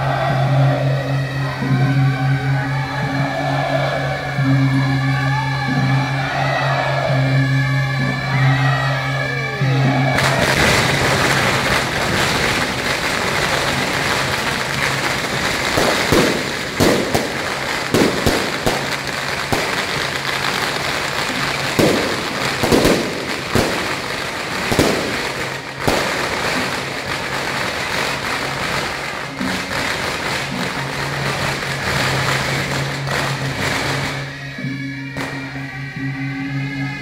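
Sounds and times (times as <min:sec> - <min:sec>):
firecrackers crackling: 0:10.1 - 0:35.7
firecracker bangs: 0:10.2 - 0:34.4.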